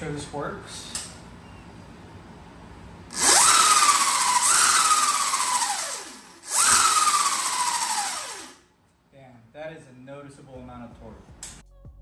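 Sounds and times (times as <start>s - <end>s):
electric motor whine: 3.1s - 8.6s.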